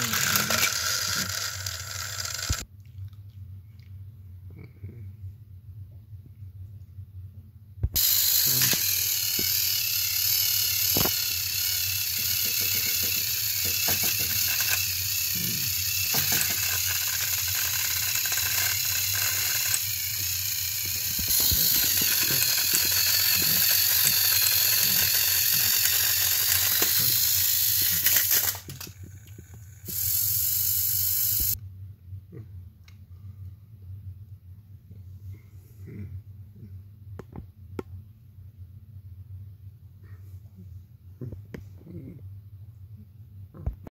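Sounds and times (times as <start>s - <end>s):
clicks from toy wheels: 0.0s - 2.6s, 8.0s - 31.6s
toy train motors whirring: 0.0s - 2.6s, 8.0s - 31.6s.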